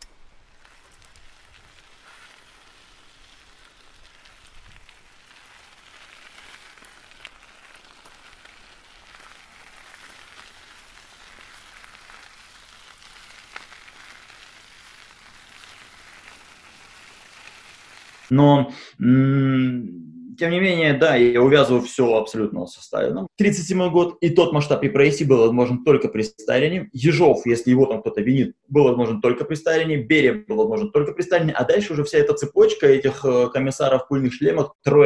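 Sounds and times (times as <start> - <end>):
crackling static hiss: 0.0 - 18.3.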